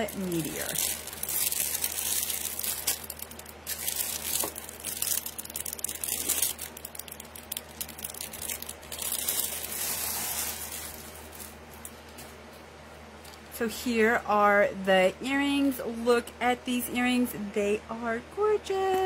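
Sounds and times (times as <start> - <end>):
packaging crinkling and rustling: 0.0 - 12.4.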